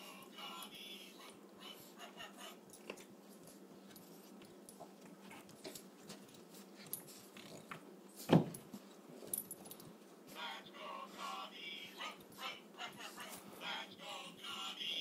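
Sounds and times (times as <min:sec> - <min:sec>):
puppy scuffling on carpet: 0:03.1 - 0:10.4.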